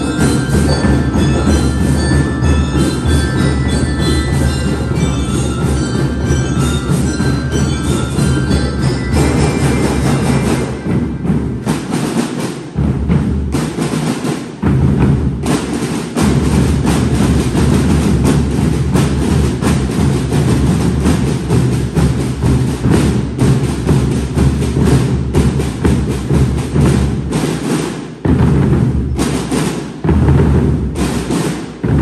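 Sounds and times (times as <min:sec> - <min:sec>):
snare and bass drum cadence: 0:00.0 - 0:32.0.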